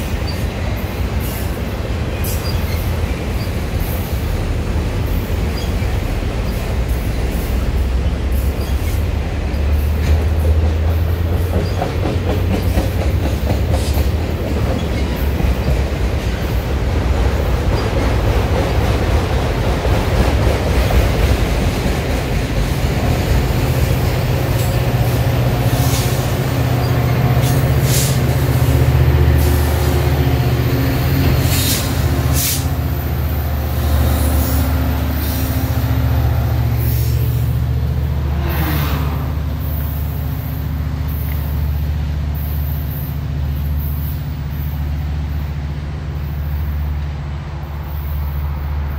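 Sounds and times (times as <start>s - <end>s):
train wheels rumbling on rail: 0.0s - 48.9s
wheels squealing: 1.2s - 4.3s, 5.0s - 13.0s, 24.4s - 28.8s.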